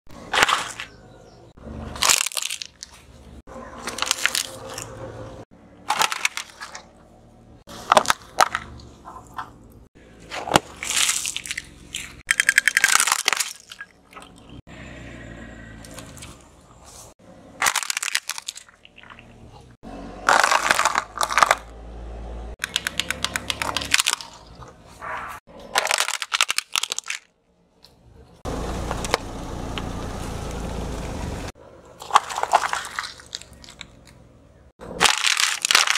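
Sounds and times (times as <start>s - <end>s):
tyres crushing plastic toys: 0.1s - 1.0s, 1.9s - 4.9s, 5.8s - 7.0s, 7.7s - 9.6s, 10.2s - 14.4s, 17.4s - 21.7s, 22.6s - 24.8s, 25.5s - 27.4s, 31.9s - 34.2s, 34.8s - 35.9s.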